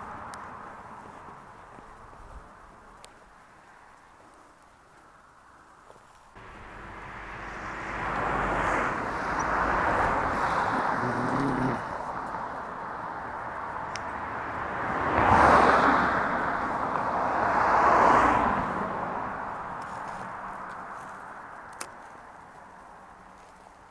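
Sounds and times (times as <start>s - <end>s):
cars passing on road: 0.0s - 23.9s.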